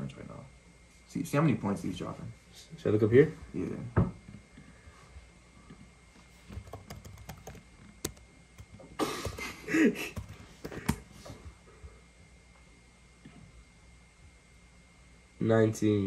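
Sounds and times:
keyboard key clicks: 6.5s - 9.6s, 10.2s - 11.0s.

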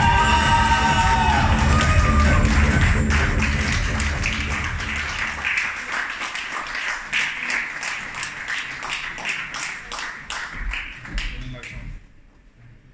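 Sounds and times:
dance music: 0.0s - 5.4s
audience applauding: 0.0s - 11.7s.

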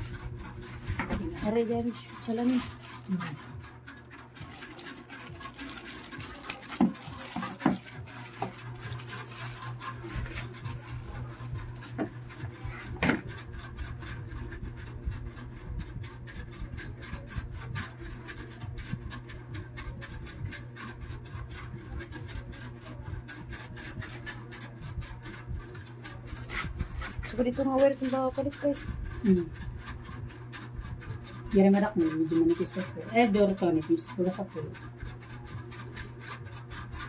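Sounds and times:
steady low hum: 0.0s - 37.0s
plastic packaging crinkling: 2.0s - 10.6s.

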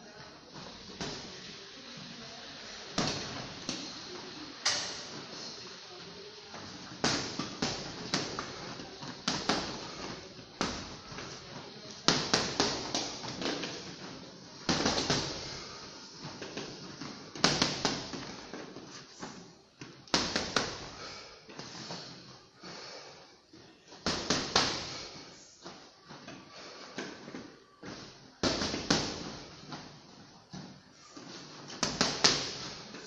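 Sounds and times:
punches hitting heavy bags: 12.1s - 13.1s, 17.4s - 18.2s.

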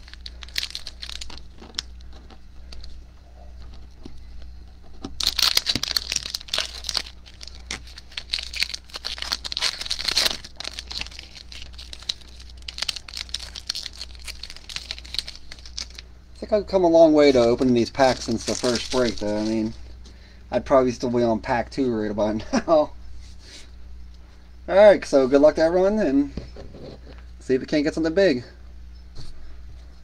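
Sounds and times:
foil wrapper crinkling and tearing: 0.0s - 2.9s, 5.0s - 16.0s, 17.2s - 19.8s.

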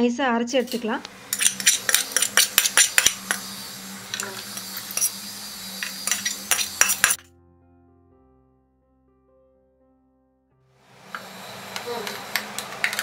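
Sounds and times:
spoon scraping a steel pan: 0.6s - 7.3s.

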